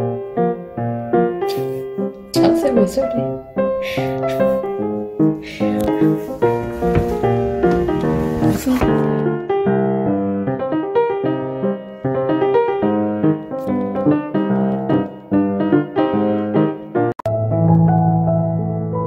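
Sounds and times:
solo piano music: 0.0s - 19.0s.

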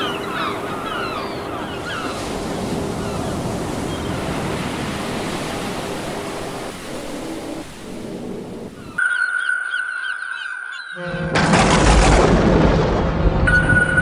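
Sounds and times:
surf on shingle beach: 0.0s - 9.0s.

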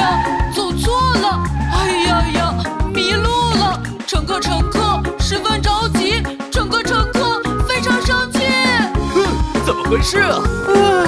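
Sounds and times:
cartoon character singing: 0.0s - 4.8s
backing track with bass: 0.0s - 11.0s.

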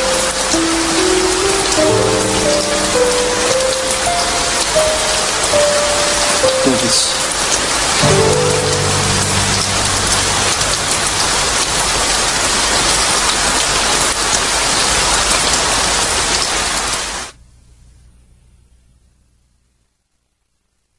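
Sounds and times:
heavy rain hissing: 0.0s - 17.4s
faint low hum: 17.3s - 20.9s.

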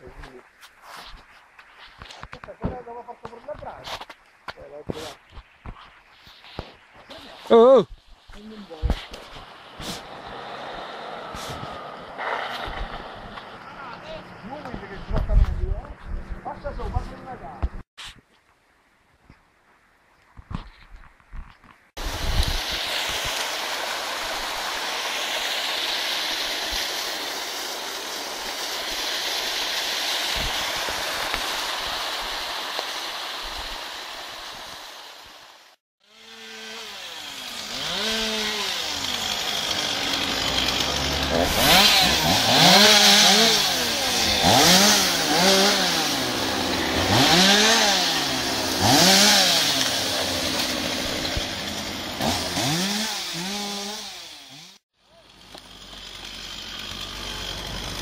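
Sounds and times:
chainsaw revving: 9.8s - 13.6s, 22.1s - 58.0s
waterfall splashing: 22.0s - 35.8s.

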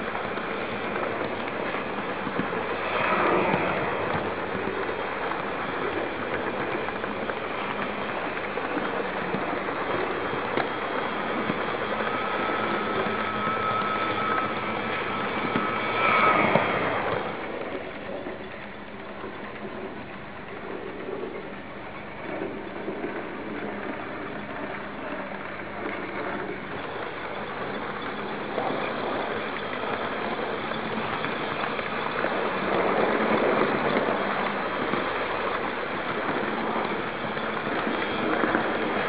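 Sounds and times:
motor whine: 10.4s - 17.6s.

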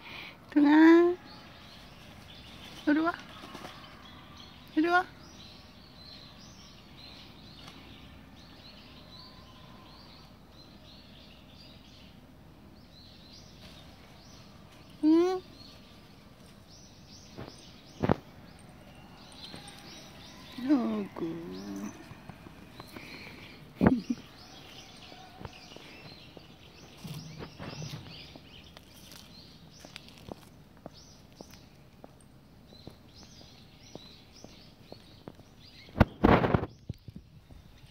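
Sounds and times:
low background noise: 0.0s - 37.9s
small birds chirping: 0.0s - 37.9s
footsteps on paved path: 12.9s - 37.9s.

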